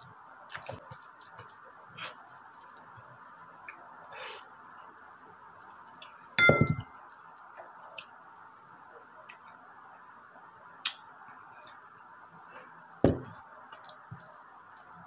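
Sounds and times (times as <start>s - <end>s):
drinking glass clinking: 6.4s - 7.0s.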